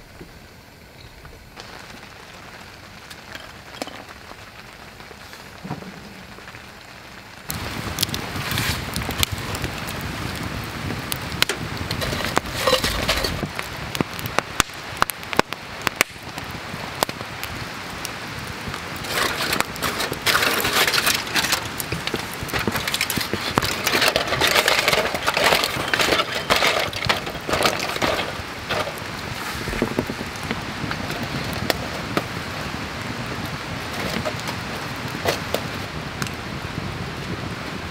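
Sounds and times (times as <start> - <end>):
campfire crackling: 0.0 - 37.9
sharp pops and snaps: 13.4 - 17.6.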